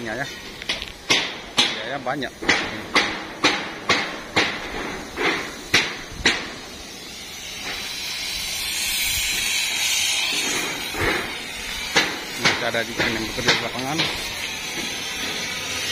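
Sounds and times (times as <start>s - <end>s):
broad hiss: 0.0s - 15.9s
hammer strikes: 0.7s - 1.8s, 2.4s - 6.6s, 11.9s - 14.2s.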